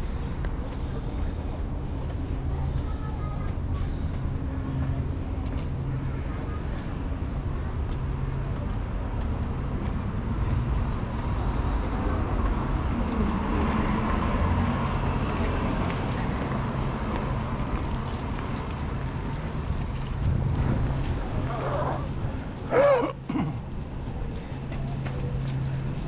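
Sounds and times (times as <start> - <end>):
cars passing close by: 10.0 - 26.0.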